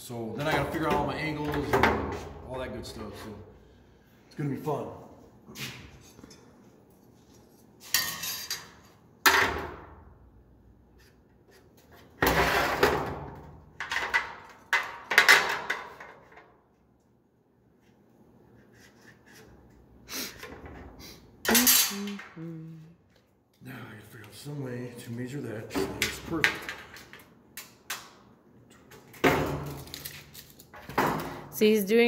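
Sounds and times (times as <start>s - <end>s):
metal tools clattering on workbench: 7.8s - 8.8s, 21.5s - 22.1s.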